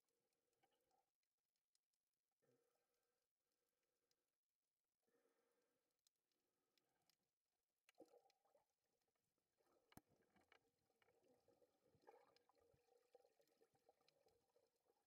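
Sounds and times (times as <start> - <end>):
faint underwater ambience: 0.0 - 1.5, 5.0 - 15.0
faint clicks and crackles: 5.9 - 15.0.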